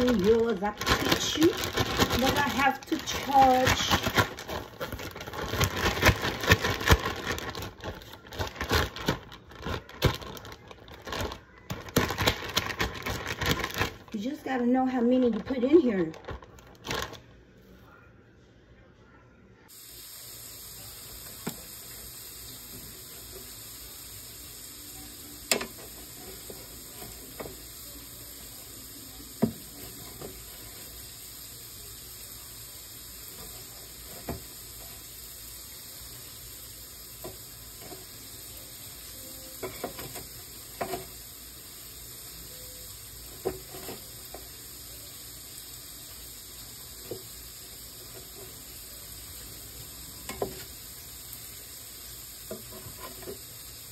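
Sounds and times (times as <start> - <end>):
steady hiss: 19.7 - 53.9.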